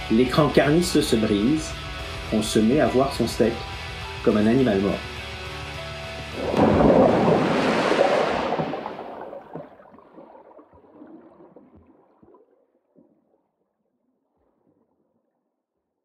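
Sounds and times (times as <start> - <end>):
wave washing in: 6.3 - 9.7.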